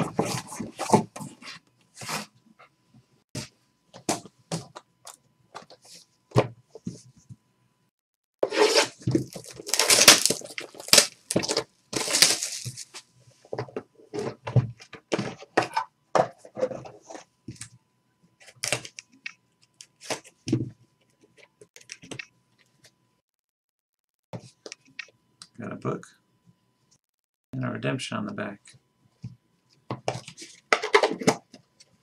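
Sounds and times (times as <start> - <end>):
plastic wrap ripping and crinkling: 8.6 - 12.9.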